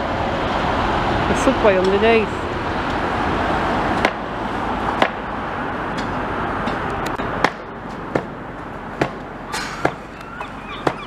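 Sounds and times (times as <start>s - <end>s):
passing traffic rushing: 0.0s - 11.0s
sharp uneven knocks: 9.0s - 10.1s.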